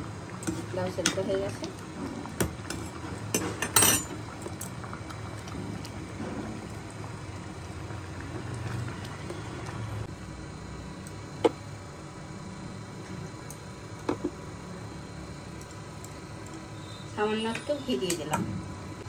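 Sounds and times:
food simmering: 0:00.0 - 0:11.1.

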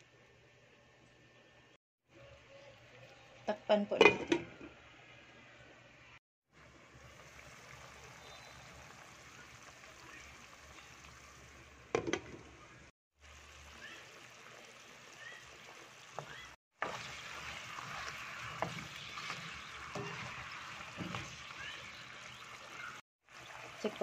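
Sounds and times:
sauce bubbling and popping: 0:15.5 - 0:23.8.

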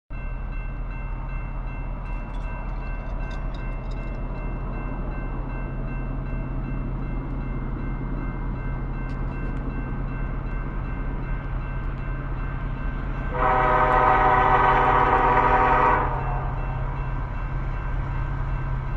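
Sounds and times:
locomotive air horn blast: 0:13.3 - 0:16.5.

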